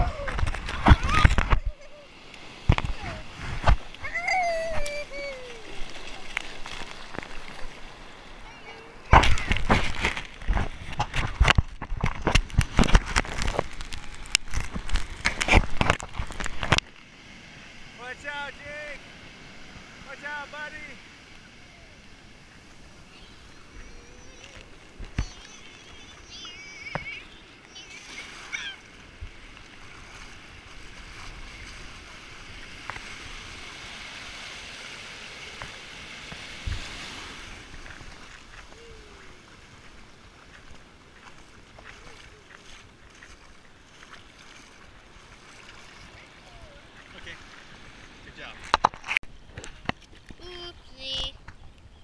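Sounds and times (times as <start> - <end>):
shallow surf washing: 0.0 - 51.9
high child's voice: 8.4 - 9.6, 23.0 - 28.8, 50.4 - 51.4.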